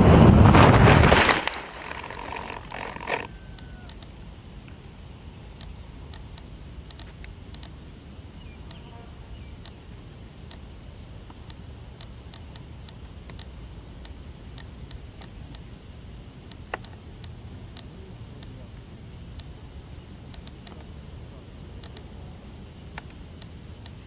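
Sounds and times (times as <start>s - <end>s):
wind rumbling on microphone: 0.0s - 4.1s
faint ticks and clicks: 1.5s - 7.8s, 8.4s - 19.6s, 20.2s - 20.9s, 21.7s - 22.2s, 22.8s - 24.0s.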